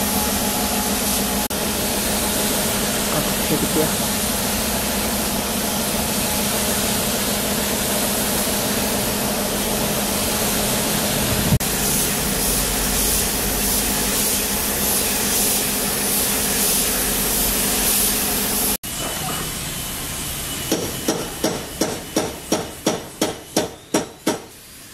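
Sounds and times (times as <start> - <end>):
paint spray gun hissing: 1.0 - 11.0, 11.6 - 18.8.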